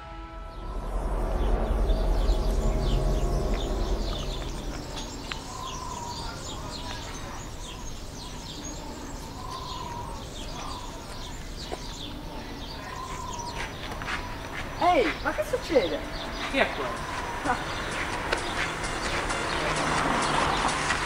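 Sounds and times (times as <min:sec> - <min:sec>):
music: 0:00.0 - 0:05.0, 0:17.8 - 0:21.0
small birds chirping: 0:00.6 - 0:21.0.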